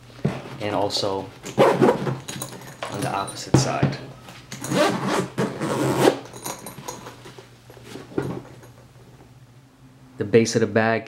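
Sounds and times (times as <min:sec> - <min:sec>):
zipper rasping open: 0:01.5 - 0:02.3, 0:04.6 - 0:06.7.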